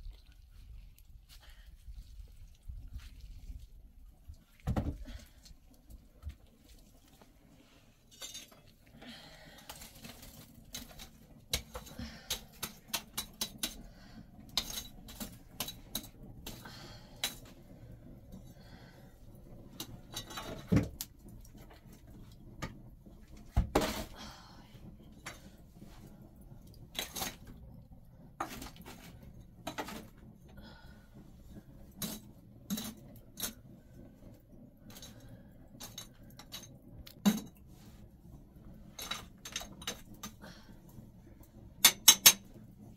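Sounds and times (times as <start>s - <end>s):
metal pot and utensils clinking: 8.1s - 8.7s, 10.7s - 13.9s, 14.5s - 16.6s, 19.8s - 20.8s, 32.0s - 33.6s, 35.8s - 37.6s, 39.0s - 40.4s, 41.8s - 42.5s.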